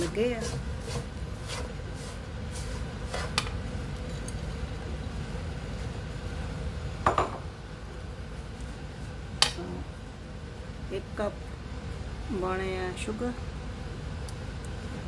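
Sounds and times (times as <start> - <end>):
spatula scraping semolina in wok: 0.0 - 3.4.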